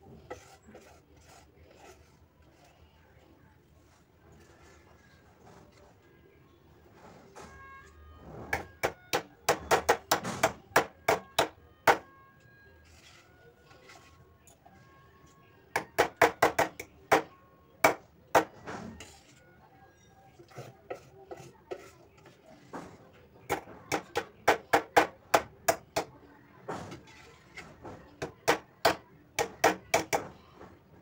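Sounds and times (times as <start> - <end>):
whisk clinking against metal bowl: 20.3 - 22.7.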